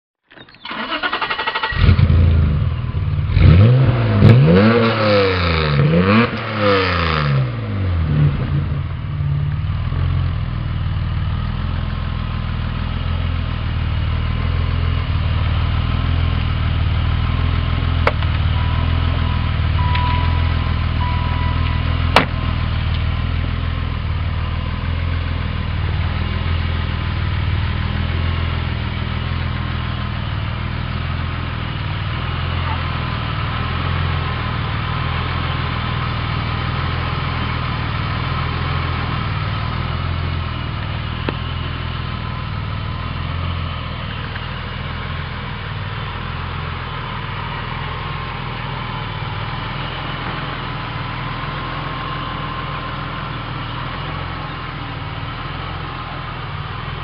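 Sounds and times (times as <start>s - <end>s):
car engine starting and revving: 0.6s - 10.4s.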